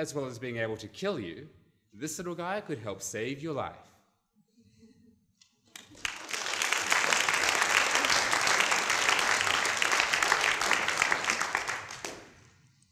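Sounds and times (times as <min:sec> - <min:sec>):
audience applauding: 0:05.8 - 0:12.5.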